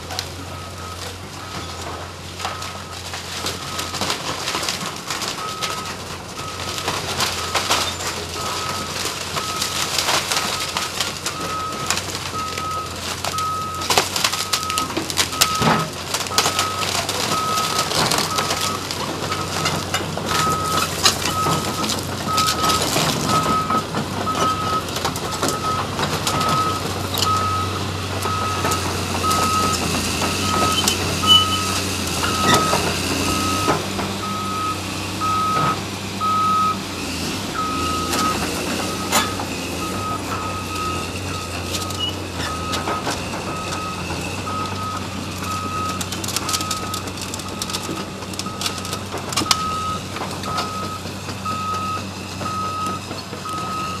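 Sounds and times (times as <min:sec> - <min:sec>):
debris clanking and crashing: 0:00.0 - 0:54.0
excavator diesel engine running: 0:00.0 - 0:54.0
backup alarm beeping: 0:20.3 - 0:25.8, 0:30.5 - 0:36.8.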